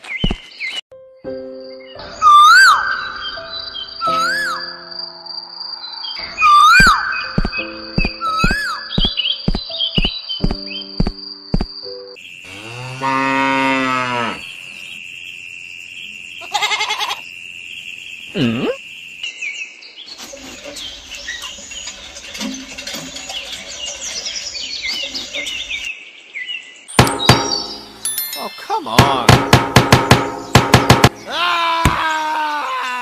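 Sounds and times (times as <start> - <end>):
cow mooing: 12.5 - 14.5.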